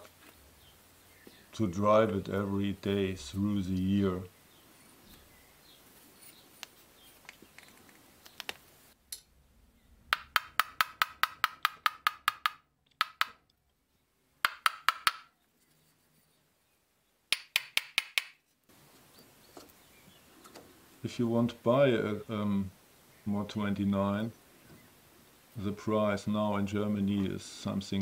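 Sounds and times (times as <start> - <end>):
hammer tapping on steel: 10.1 - 13.4, 14.4 - 15.3, 17.3 - 18.4.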